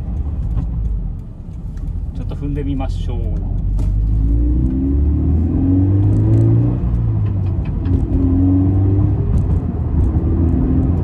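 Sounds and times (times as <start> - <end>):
car engine accelerating hard: 3.6 - 11.0.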